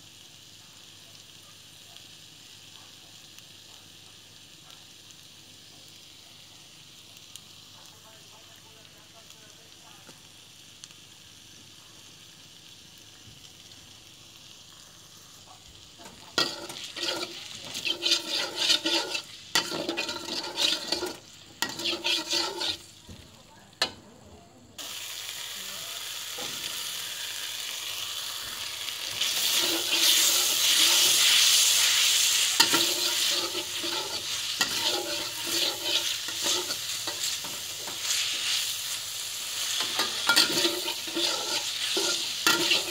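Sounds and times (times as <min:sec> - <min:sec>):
oil sizzling: 0:00.0 - 0:42.9
metal spatula scraping wok: 0:16.0 - 0:23.0, 0:29.1 - 0:42.9.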